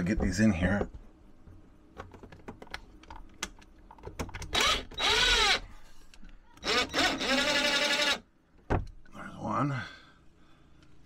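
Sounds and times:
cordless drill motor whirring: 4.5s - 5.6s, 6.6s - 8.2s.

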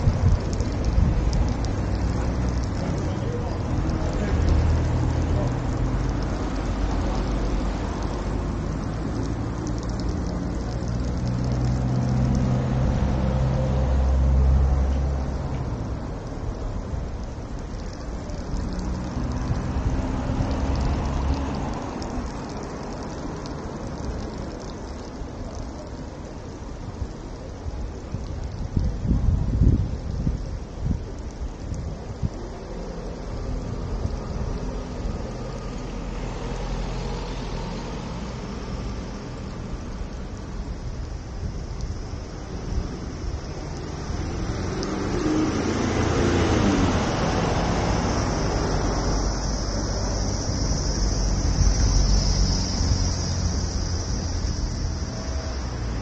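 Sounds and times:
wind buffeting microphone: 0.0s - 13.1s, 27.0s - 35.3s
steady hiss: 0.0s - 56.0s
vehicle engine rumble passing: 0.0s - 56.0s.

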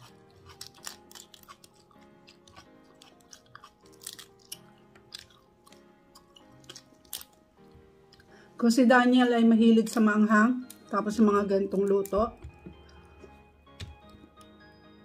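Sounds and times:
shrimp shells crackling: 0.0s - 7.7s
soft background music: 0.0s - 15.0s.

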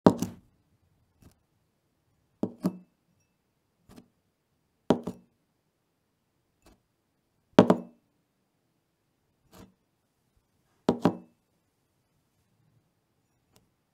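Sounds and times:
glass knocking on wooden table: 10.9s - 11.3s.

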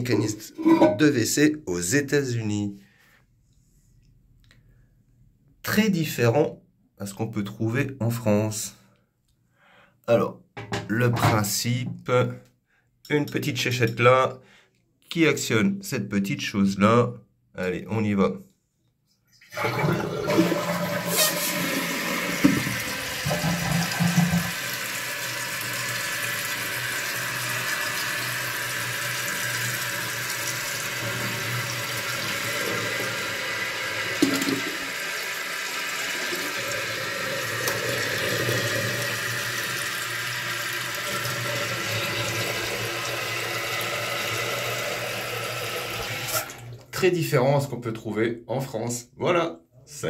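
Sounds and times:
toilet tank draining: 0.0s - 1.3s, 19.4s - 46.9s
fill valve hissing: 19.6s - 46.7s.

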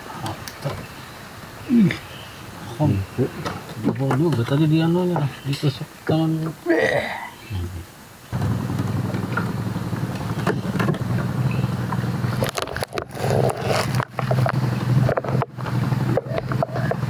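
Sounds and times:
boat engine running: 8.3s - 17.0s.

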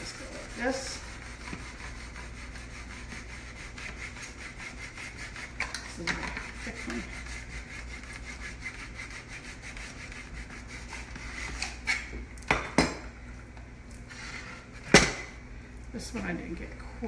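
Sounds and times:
knife sawing through raw chicken: 0.0s - 11.8s.

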